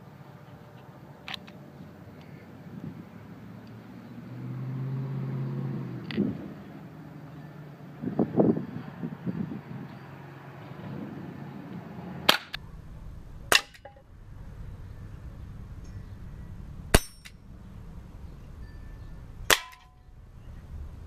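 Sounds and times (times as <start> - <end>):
air pistol shots cracking: 12.3 - 12.6, 13.5 - 13.9
short metallic ring: 16.9 - 17.4, 18.5 - 20.1.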